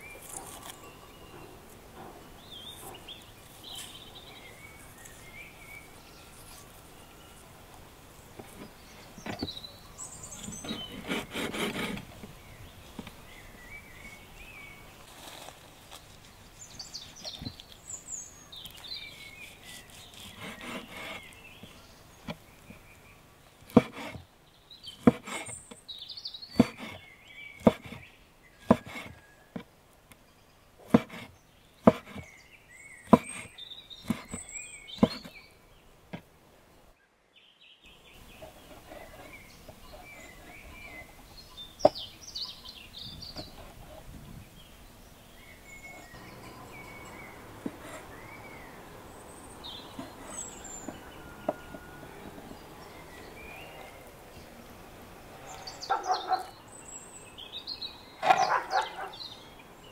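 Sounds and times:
birds chirping: 0.0s - 59.9s
knife chopping on wooden board: 23.7s - 24.2s, 25.0s - 25.6s, 26.6s - 27.0s, 27.6s - 28.0s, 28.6s - 29.2s, 30.9s - 32.3s, 33.1s - 34.4s, 35.0s - 35.3s.

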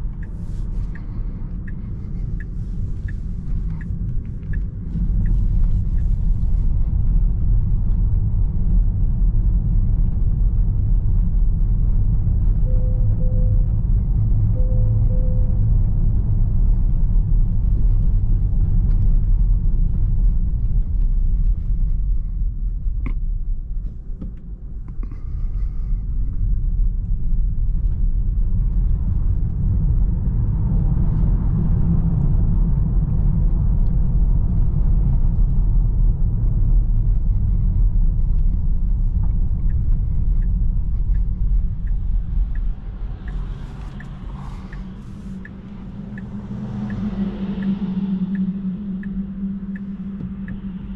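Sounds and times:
turn signal ticking: 0.0s - 6.6s, 39.0s - 50.9s.

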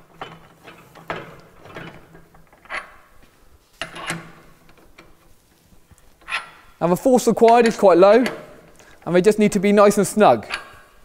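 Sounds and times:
hand tool tightening clamp screws: 3.8s - 5.3s, 6.1s - 6.6s, 7.4s - 9.2s.

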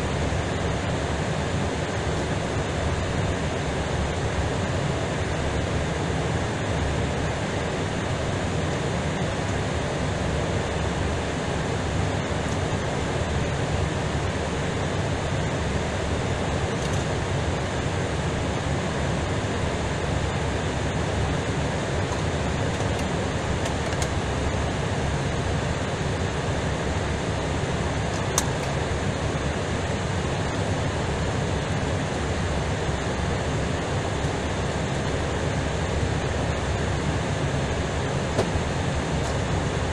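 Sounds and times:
rushing cabin noise: 22.0s - 24.3s, 38.1s - 39.9s.

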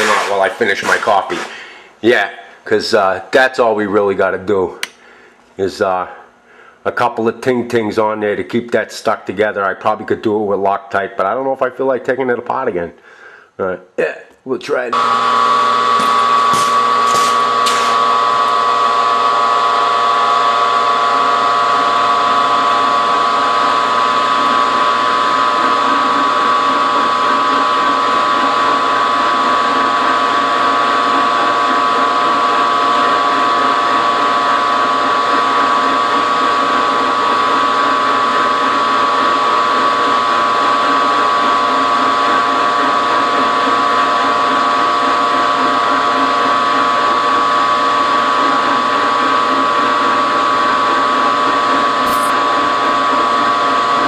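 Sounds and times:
end mill cutting steel: 0.0s - 1.7s, 14.9s - 54.0s
milling machine motor whine: 0.0s - 1.8s, 14.9s - 54.0s.

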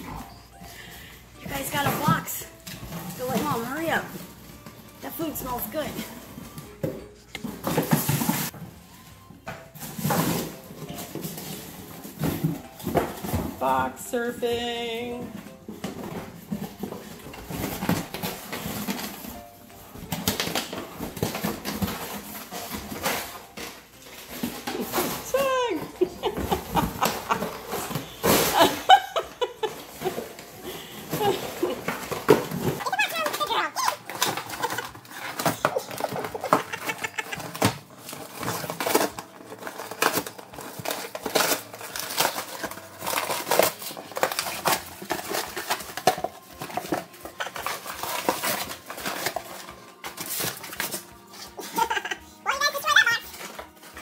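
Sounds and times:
scraping and rustling: 0.0s - 13.6s, 15.2s - 52.2s.

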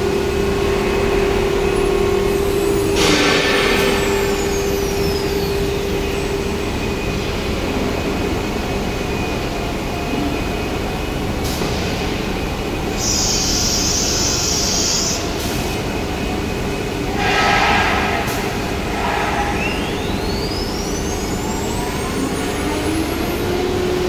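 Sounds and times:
machinery hum: 0.0s - 24.0s
compressed air hiss: 13.0s - 15.6s.

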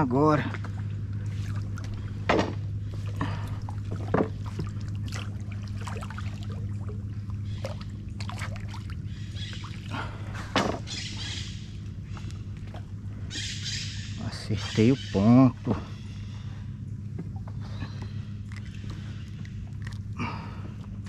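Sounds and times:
steady low hum: 0.0s - 21.0s
water splashing and dripping: 3.0s - 10.0s, 18.5s - 20.1s.

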